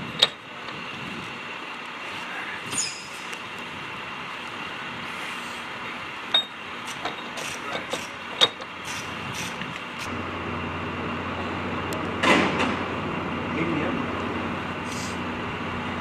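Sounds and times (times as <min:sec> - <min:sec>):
airfield background noise: 0:00.0 - 0:16.0
metal tool clinking on wheel hub: 0:02.7 - 0:03.3, 0:06.3 - 0:09.0.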